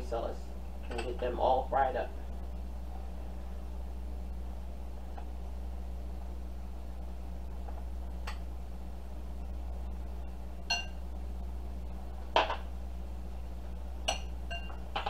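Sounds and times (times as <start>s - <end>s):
steady low hum: 0.0s - 15.0s
glass dishes clinking: 10.7s - 11.0s, 14.1s - 14.8s.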